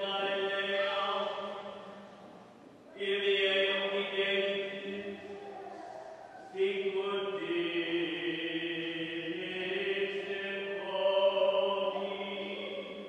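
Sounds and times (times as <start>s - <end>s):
choir singing plainchant: 2.9s - 13.0s.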